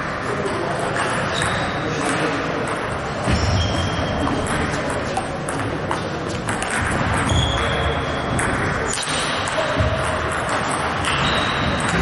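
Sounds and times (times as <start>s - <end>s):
footsteps thudding and squeaking: 3.3s - 4.4s, 7.2s - 8.3s.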